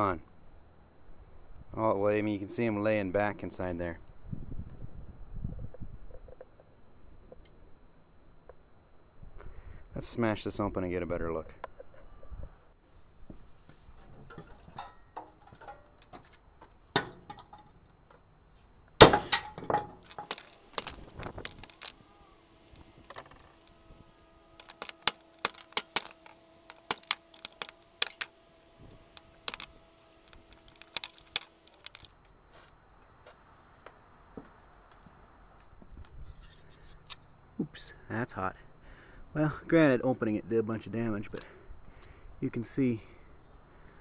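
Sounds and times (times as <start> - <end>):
sledgehammer smashing metal motor: 19.0 - 32.1
metal parts clinking: 20.0 - 32.1.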